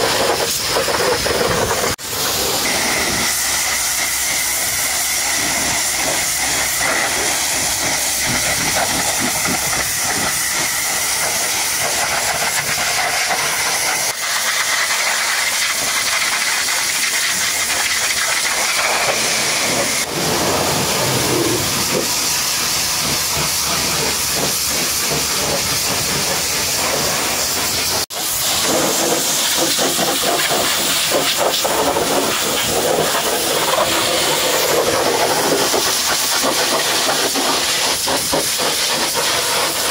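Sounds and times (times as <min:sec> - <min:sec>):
pressure washer jet hissing: 0:00.0 - 0:39.9
faint high whistle: 0:02.4 - 0:07.1.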